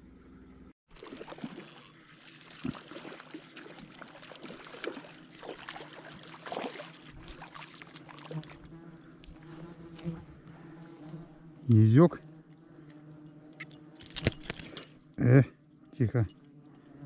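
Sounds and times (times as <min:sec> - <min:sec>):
small clicks and splashes: 0:00.9 - 0:10.1, 0:12.4 - 0:15.0
water lapping and trickling: 0:00.9 - 0:11.6.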